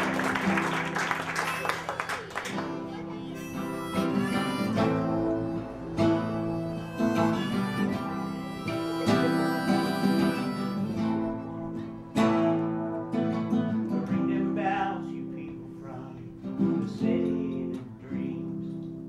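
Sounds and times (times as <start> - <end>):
acoustic guitar strummed: 0.0 - 19.0
harmonica: 1.3 - 2.2, 2.8 - 13.1.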